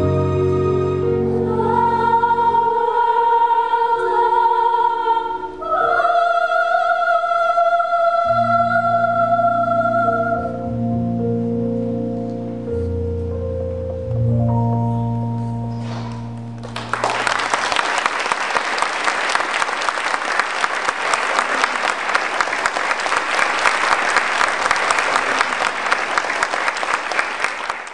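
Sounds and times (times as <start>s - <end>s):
held music chord: 8.0s - 17.4s
audience applauding: 15.9s - 27.9s.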